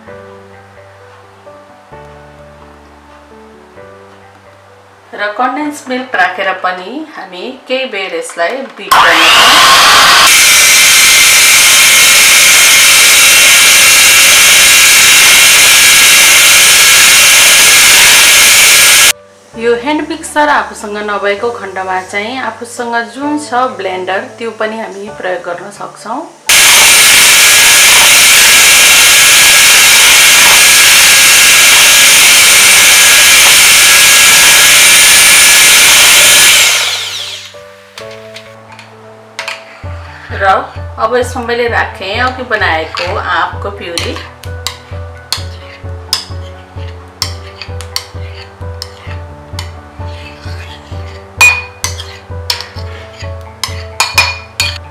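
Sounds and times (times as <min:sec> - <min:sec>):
electric hand mixer whipping cream: 0:08.9 - 0:19.1, 0:26.5 - 0:37.6.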